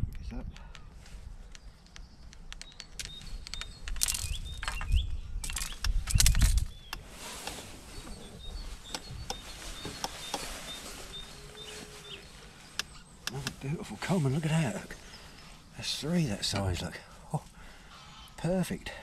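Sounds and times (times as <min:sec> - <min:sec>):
low wind rumble: 0:00.0 - 0:18.0
small bird chirping: 0:00.2 - 0:07.1, 0:07.8 - 0:18.6.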